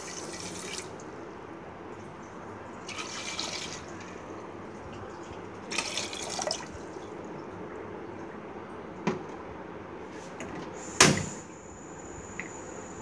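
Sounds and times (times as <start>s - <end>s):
water pouring into a pot: 2.9s - 4.0s.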